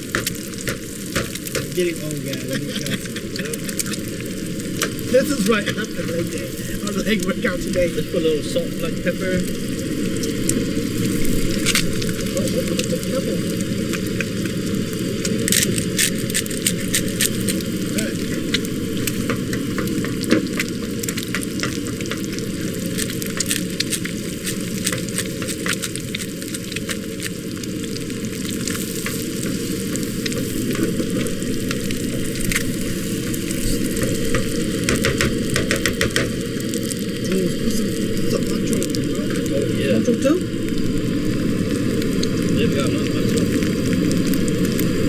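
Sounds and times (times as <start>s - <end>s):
eggs sizzling in a skillet: 0.0s - 45.0s
pepper grinder: 15.5s - 17.6s.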